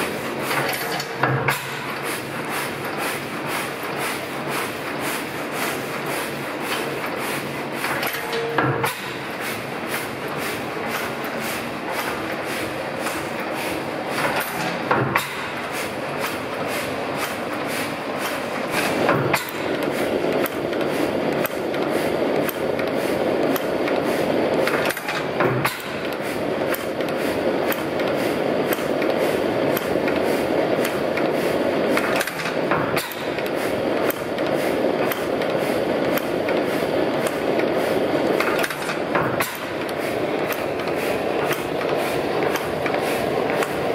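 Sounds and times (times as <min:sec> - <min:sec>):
stationary engine valve gear clicking: 0:07.8 - 0:09.2, 0:18.2 - 0:30.2, 0:32.0 - 0:37.7, 0:38.3 - 0:43.9.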